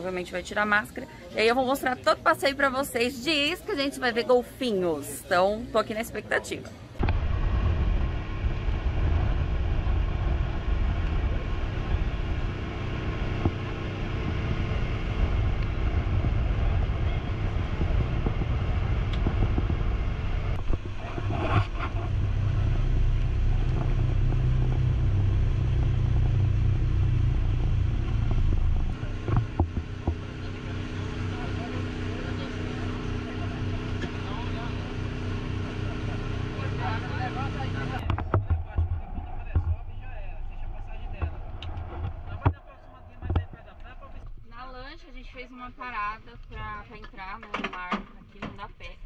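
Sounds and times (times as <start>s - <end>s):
outboard motor drone: 7.0s - 45.0s
hull rushing over water: 7.0s - 46.8s.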